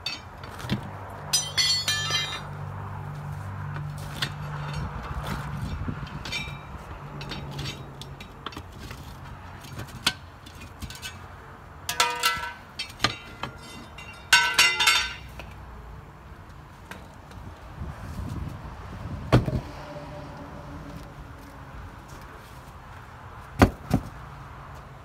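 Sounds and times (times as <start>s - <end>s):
metal tools clanking and clinking: 0.0s - 2.5s, 4.2s - 9.0s, 9.7s - 11.2s, 11.9s - 15.5s
loud ringing metal clangs: 1.3s - 2.5s, 11.9s - 15.3s.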